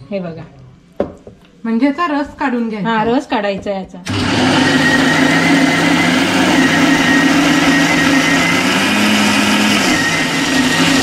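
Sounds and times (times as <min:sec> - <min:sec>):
mixer grinder running: 0:04.1 - 0:11.0.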